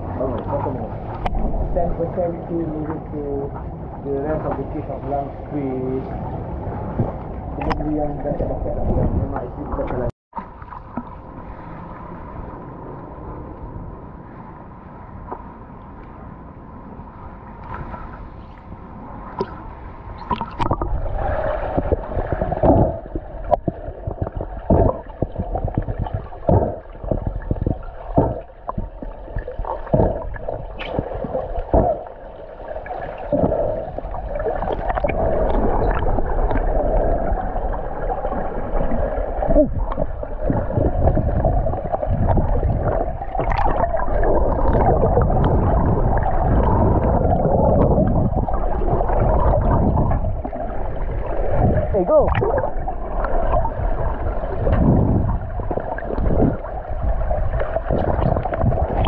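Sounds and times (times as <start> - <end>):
underwater knocks and splashes: 0.2 - 2.2, 6.9 - 11.3, 19.3 - 19.6, 20.2 - 59.0
underwater rush of water: 17.6 - 59.0.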